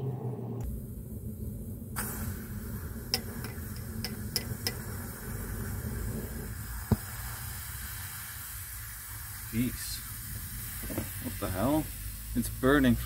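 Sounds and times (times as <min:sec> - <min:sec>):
low rumble: 0:00.0 - 0:07.4
crackles and ticks of molten mix: 0:00.6 - 0:13.0
faint hiss: 0:00.6 - 0:13.0.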